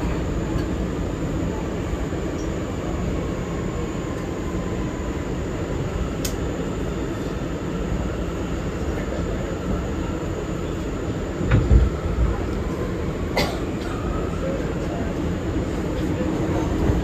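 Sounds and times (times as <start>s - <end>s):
faint steady whine: 0.0s - 17.0s
train wheels rumbling on rails: 11.3s - 17.0s.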